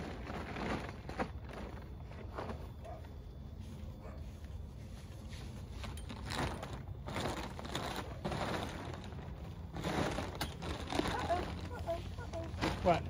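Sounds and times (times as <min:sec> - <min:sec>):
plastic cover rustling and crinkling: 0:00.0 - 0:02.8, 0:05.0 - 0:13.0.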